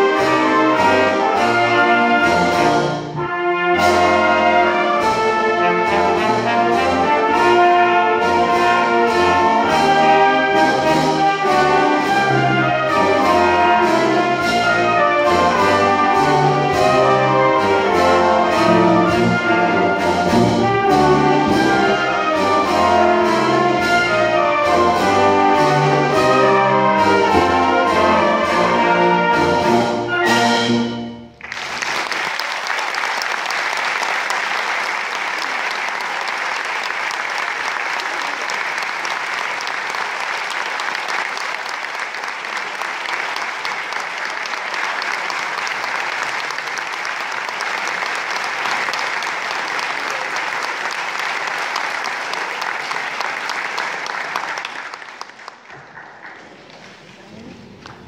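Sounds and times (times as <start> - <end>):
wind band playing: 0.0 - 55.0
audience applause: 31.4 - 58.0.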